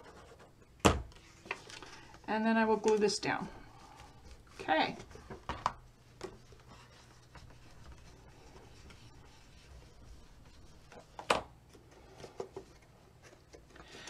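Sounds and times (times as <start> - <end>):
cardstock rubbing and rustling: 3.8 - 13.8.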